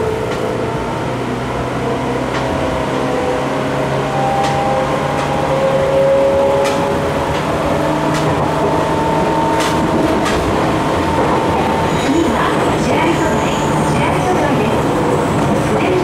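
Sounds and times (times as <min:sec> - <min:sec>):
train wheels rumbling: 0:00.0 - 0:16.0.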